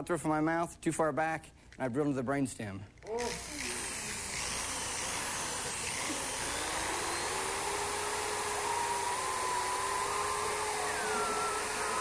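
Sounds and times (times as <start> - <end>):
electric drill whining: 3.1 - 12.0.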